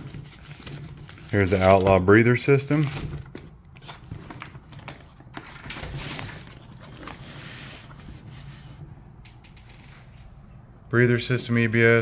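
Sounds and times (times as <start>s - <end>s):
cardboard rustling: 0.0s - 8.9s.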